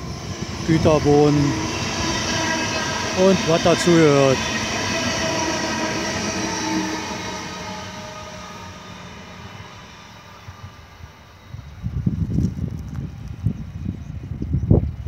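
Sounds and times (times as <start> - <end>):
electric train running: 0.0 - 14.9.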